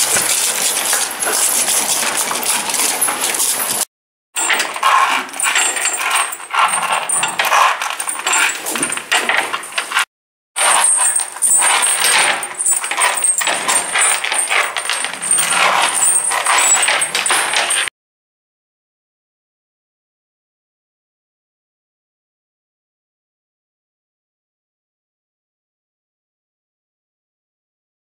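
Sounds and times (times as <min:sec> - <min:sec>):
metal chain clinking and rattling: 0:00.0 - 0:17.9.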